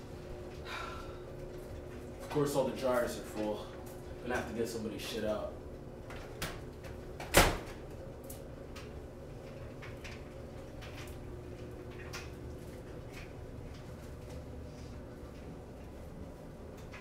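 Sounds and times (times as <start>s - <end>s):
low steady hum: 0.0s - 17.0s
dryer door clacking open: 7.2s - 7.9s.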